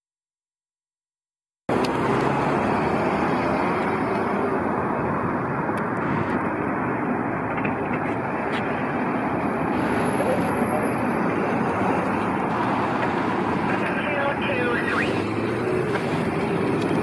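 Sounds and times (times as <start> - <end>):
cars and trucks passing: 1.7 - 17.0.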